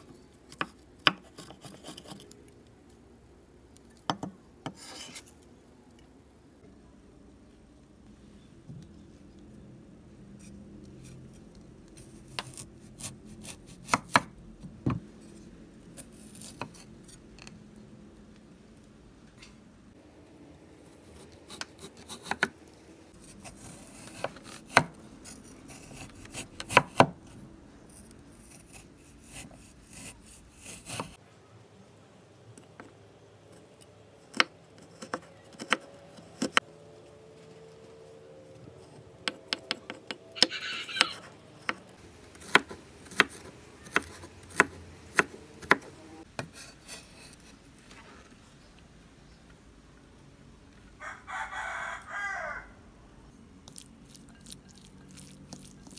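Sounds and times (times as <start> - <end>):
knife scraping board: 4.7 - 5.4.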